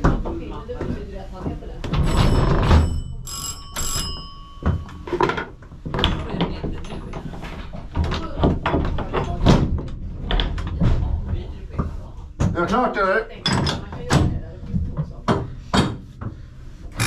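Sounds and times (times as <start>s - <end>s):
tram bell ringing: 2.3s - 5.3s.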